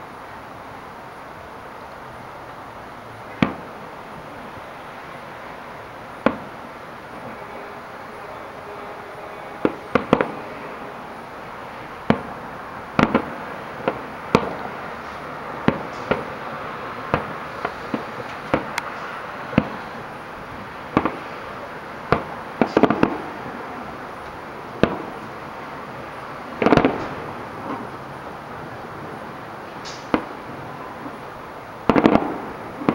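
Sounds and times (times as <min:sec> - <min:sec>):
steady background noise: 0:00.0 - 0:32.9
firework shells bursting: 0:03.3 - 0:03.8, 0:06.2 - 0:23.3, 0:24.1 - 0:25.6, 0:26.6 - 0:28.0, 0:29.6 - 0:32.9.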